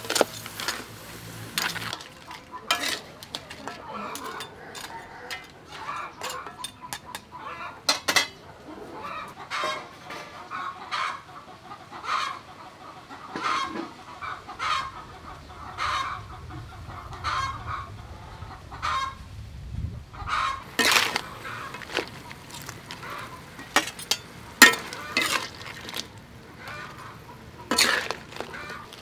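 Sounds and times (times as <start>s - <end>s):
ladle clinking against wok: 1.6s - 7.3s, 20.7s - 26.1s, 27.7s - 29.0s
chicken clucking: 2.0s - 19.3s, 20.1s - 29.0s.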